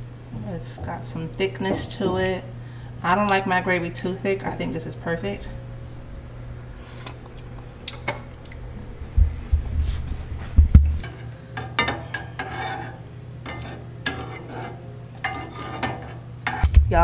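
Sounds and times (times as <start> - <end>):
low hum: 0.0 - 17.0
dull low thumps: 8.6 - 11.0, 16.6 - 17.0
metal spoon stirring in saucepan: 11.0 - 16.6.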